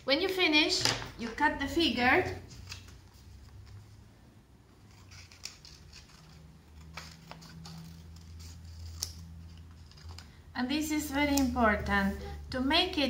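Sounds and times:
scissors snipping paper: 4.9s - 10.3s.

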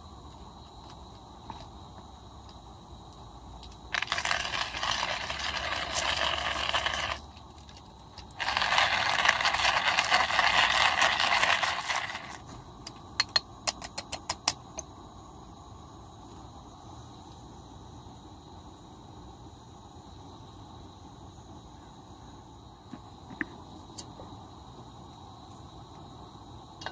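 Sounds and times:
coffee grinder crunching beans: 3.9s - 12.5s.

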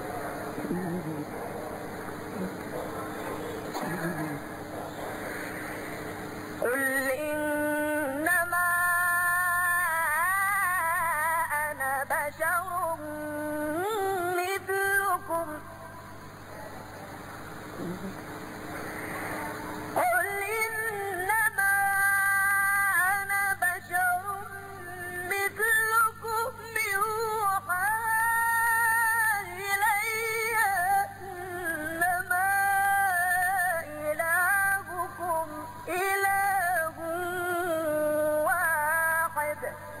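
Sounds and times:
person reciting melodically: 6.6s - 15.9s, 20.0s - 40.0s.

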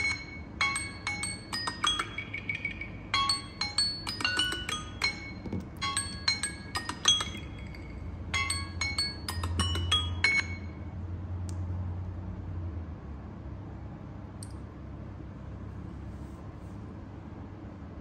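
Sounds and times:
phone timer chiming: 0.0s - 10.8s
click: 14.4s - 14.6s.

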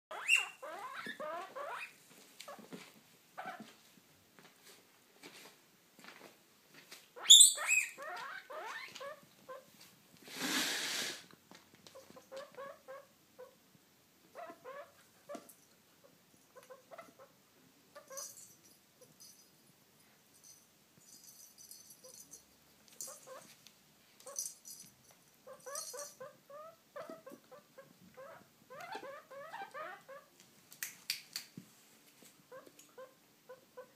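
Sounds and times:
guinea pig squeaking: 0.1s - 2.6s, 3.4s - 3.6s, 7.2s - 9.7s, 11.9s - 13.6s, 14.3s - 15.4s, 16.0s - 17.4s, 18.0s - 18.3s, 23.1s - 23.5s, 25.4s - 30.3s, 32.5s - 33.9s
rustle: 7.9s - 12.6s.

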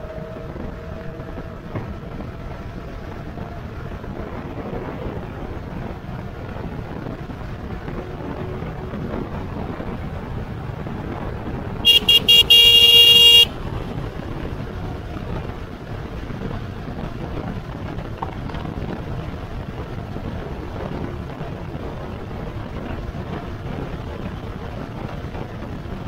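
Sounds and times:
bike riding noise: 0.0s - 26.0s
wind on microphone: 0.0s - 26.0s
electric horn beeping: 11.8s - 13.6s.

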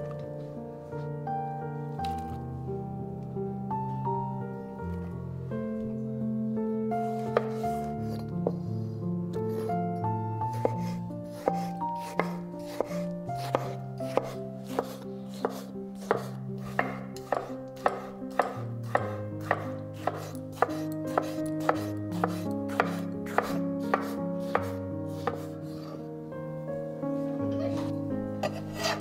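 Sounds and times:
soft background music: 0.0s - 29.0s
knife chopping on cutting board: 7.2s - 8.2s, 10.6s - 25.9s.

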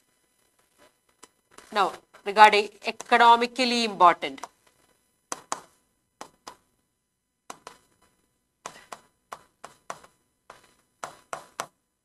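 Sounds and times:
pen tapping on glass: 8.7s - 11.7s.

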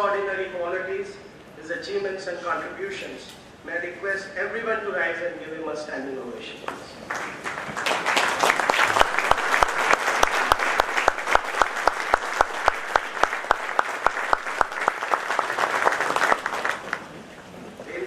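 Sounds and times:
sharp evenly spaced claps: 7.1s - 17.0s
crowd applauding: 7.1s - 17.2s.

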